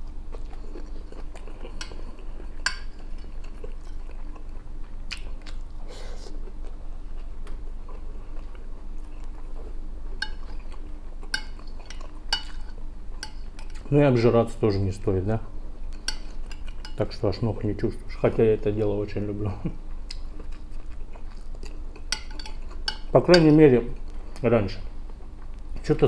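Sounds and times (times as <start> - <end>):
chewing: 0.0 - 13.9, 19.9 - 24.4
low steady hum: 0.0 - 26.0
spoon scraping a plate: 11.4 - 13.8, 16.0 - 17.1, 22.0 - 23.5.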